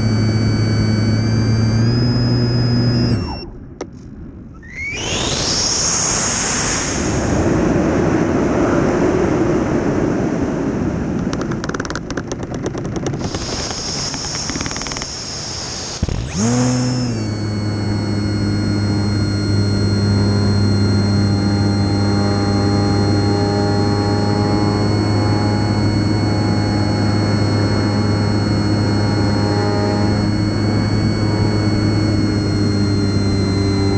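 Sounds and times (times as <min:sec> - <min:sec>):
model airplane propeller whine: 0:00.0 - 0:03.7, 0:04.6 - 0:07.9, 0:11.2 - 0:33.9
wind rush: 0:04.9 - 0:11.6
rapid clicks: 0:11.2 - 0:19.9.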